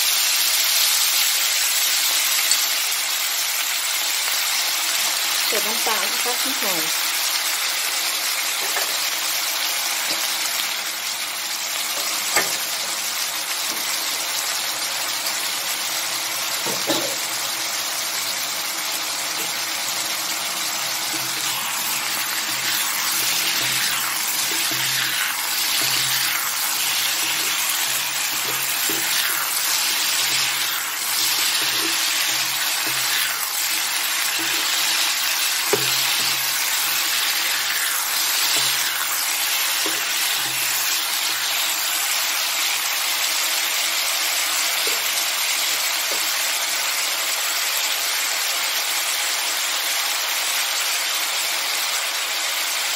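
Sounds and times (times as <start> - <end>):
stir-fry sizzling in a wok: 0.0 - 52.9
spatula scraping a wok: 21.0 - 42.3.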